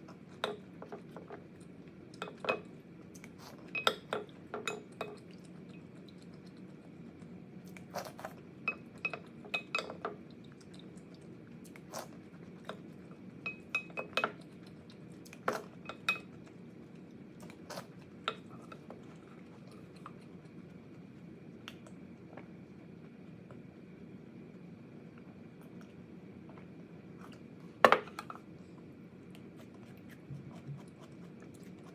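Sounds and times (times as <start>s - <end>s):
spoon clinking on glass dish: 3.8s - 5.2s.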